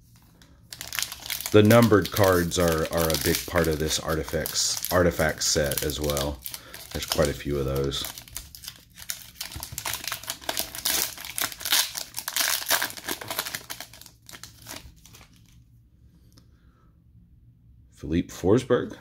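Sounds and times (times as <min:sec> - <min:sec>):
foil wrapper crinkling and tearing: 0:00.3 - 0:15.6.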